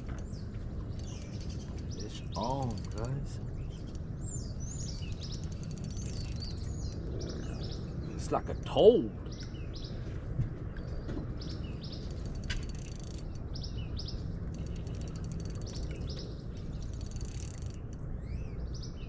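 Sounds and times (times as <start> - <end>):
birds chirping: 0.0 - 19.0
fishing reel clicking rapidly: 0.9 - 3.2, 4.8 - 7.0, 11.4 - 13.5, 14.5 - 18.0.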